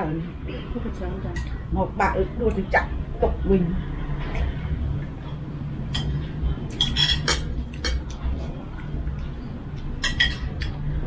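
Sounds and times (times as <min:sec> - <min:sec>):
steady low hum: 0:00.0 - 0:11.0
spoons and bowls clinking: 0:05.9 - 0:07.5, 0:10.0 - 0:10.8.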